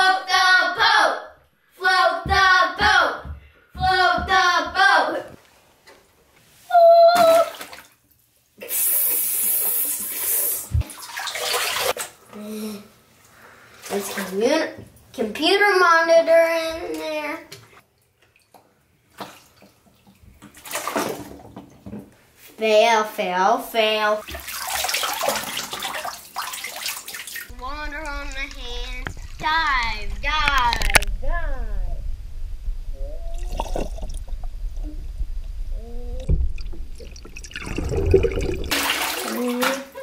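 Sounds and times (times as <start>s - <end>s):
bathwater sloshing and splashing: 7.2s - 8.3s, 10.8s - 12.3s, 13.2s - 15.1s, 16.9s - 21.8s, 23.8s - 31.1s, 33.3s - 40.0s
muffled water sloshing underwater: 27.5s - 38.8s
toy boat knocking underwater: 28.1s - 31.2s.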